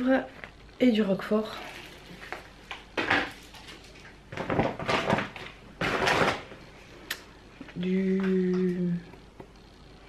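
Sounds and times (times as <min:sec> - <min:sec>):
plastic bags rustling: 0:01.4 - 0:06.8
woman humming: 0:07.8 - 0:09.2.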